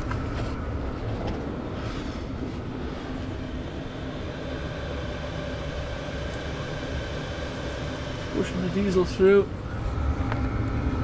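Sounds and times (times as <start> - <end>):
faint steady hum: 0.0 - 11.0
heater fan and burner rumble: 0.0 - 11.0.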